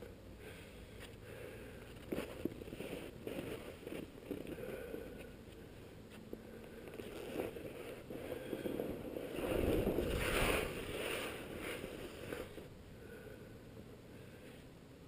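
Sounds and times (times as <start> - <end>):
skis scraping over snow: 7.0 - 12.7.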